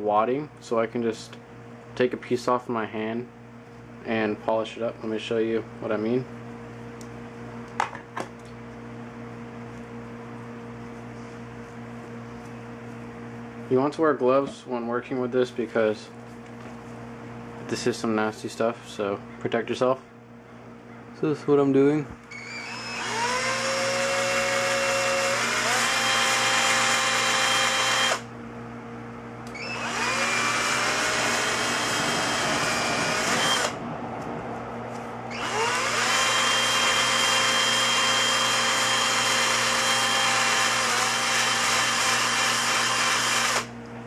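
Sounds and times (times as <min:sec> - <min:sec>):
electric drill whining: 0:22.3 - 0:28.3, 0:29.5 - 0:33.8, 0:35.3 - 0:43.7.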